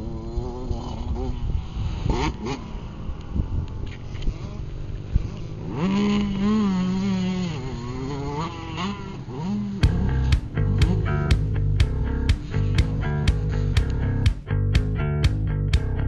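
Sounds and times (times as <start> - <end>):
motorbike engine revving: 0.0 - 16.0.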